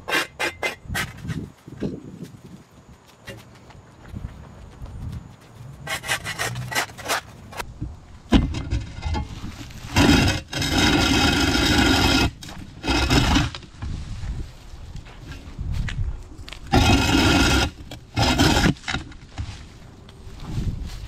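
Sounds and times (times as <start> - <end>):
shovel scraping on concrete: 0.0 - 1.4, 5.8 - 7.7, 8.9 - 13.7, 16.6 - 19.6.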